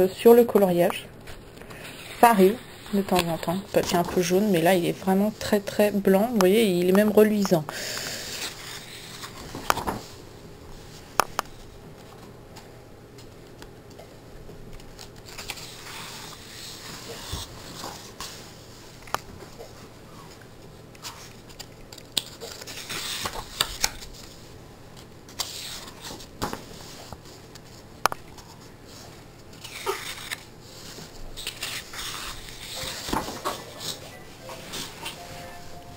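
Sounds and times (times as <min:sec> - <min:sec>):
paper pages rustling: 0:01.2 - 0:05.9, 0:07.8 - 0:10.2, 0:14.7 - 0:19.7, 0:21.0 - 0:35.3.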